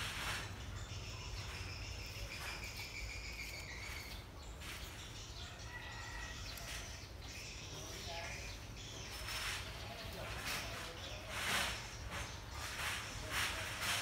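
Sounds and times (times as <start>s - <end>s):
high thin chirping calls: 0.0s - 5.4s.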